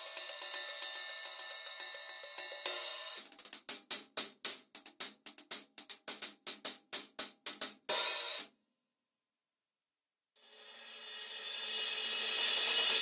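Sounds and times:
crash cymbal: 0.0 - 3.2, 10.4 - 13.0
hi-hat strokes: 0.0 - 8.5, 10.5 - 13.0
cymbal wash: 10.5 - 13.0.

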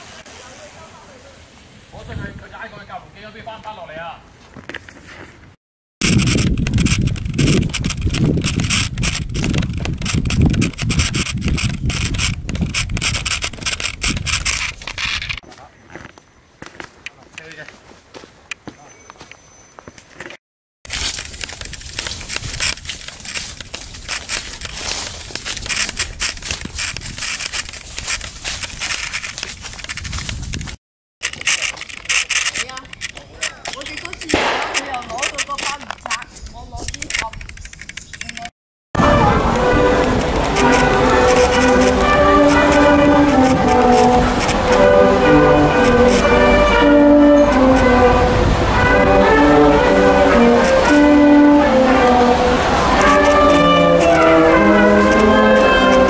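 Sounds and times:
microphone rustling and buffeting: 4.4 - 15.4, 20.2 - 30.8, 39.4 - 46.3
handheld camera rumble: 4.5 - 17.5, 20.0 - 56.0
crunches on dirt trail: 6.0 - 38.4
footsteps crunching on dry leaves: 15.4 - 19.3, 20.9 - 31.8
clothing brushing through branches: 20.9 - 31.7.

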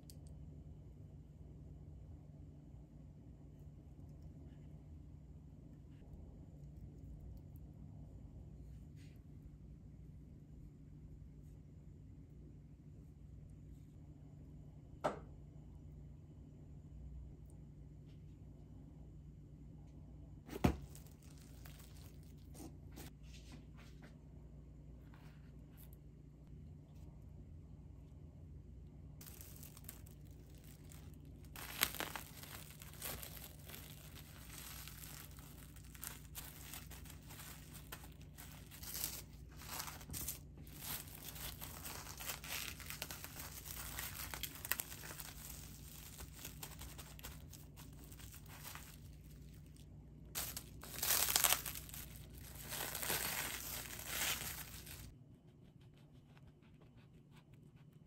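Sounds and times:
steady low hum: 0.0 - 58.0
cling film crinkling: 20.6 - 22.6, 29.2 - 55.1.

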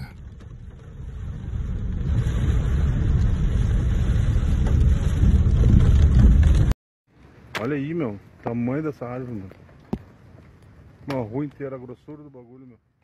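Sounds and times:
car driving on wet road: 0.2 - 6.7.

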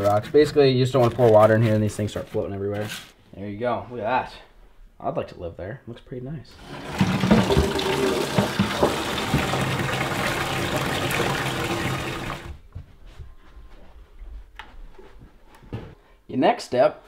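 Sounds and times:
faucet water filling bucket: 6.6 - 12.6.

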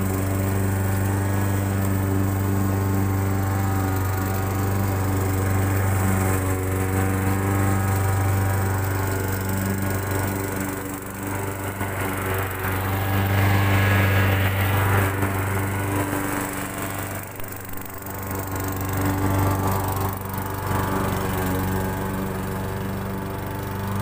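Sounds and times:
push mower engine: 0.0 - 24.0.

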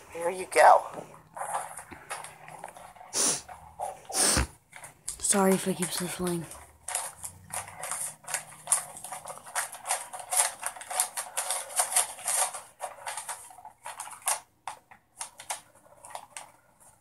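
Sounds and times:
paper envelope tearing and crinkling: 4.8 - 14.5.

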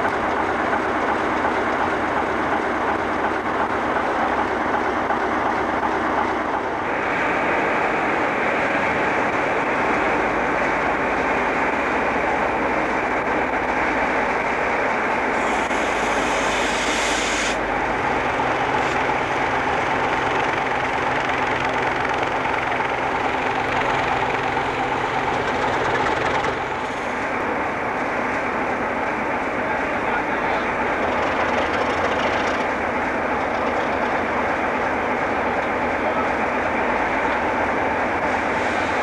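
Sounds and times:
diesel engines running: 0.0 - 39.0
brief hiss: 15.4 - 17.6.

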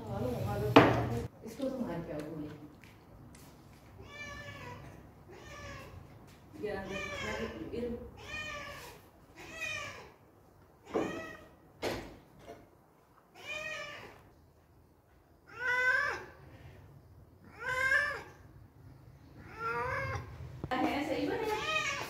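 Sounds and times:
cat meowing: 4.0 - 6.0, 6.8 - 10.2, 10.8 - 11.6, 13.3 - 14.2, 15.5 - 16.4, 17.4 - 18.4, 19.4 - 20.3, 21.4 - 22.0.

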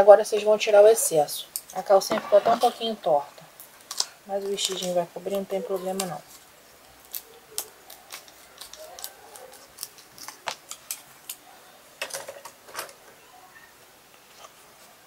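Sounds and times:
scissors snipping foam: 3.9 - 11.4.

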